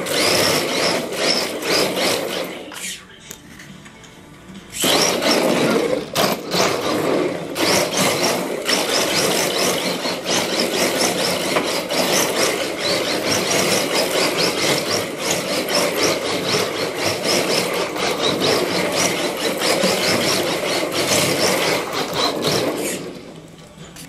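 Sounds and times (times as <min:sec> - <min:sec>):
rc car motor whirring: 0:00.0 - 0:03.1, 0:04.7 - 0:23.4
tyres scrubbing on wood floor: 0:04.8 - 0:23.1.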